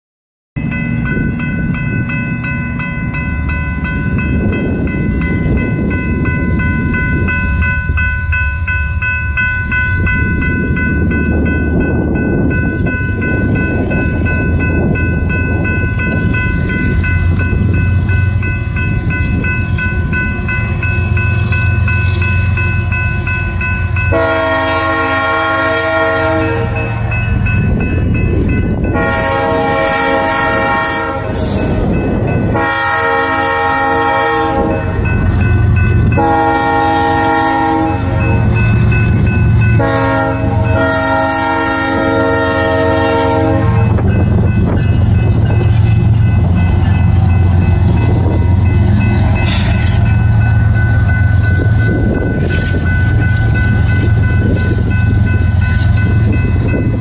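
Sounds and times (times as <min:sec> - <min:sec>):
crossing bell ringing: 0:00.6 - 0:57.0
freight train rumble: 0:00.6 - 0:57.0
locomotive horn blasts: 0:24.1 - 0:27.0, 0:28.9 - 0:31.6, 0:32.5 - 0:35.1, 0:36.0 - 0:38.5, 0:39.7 - 0:44.2.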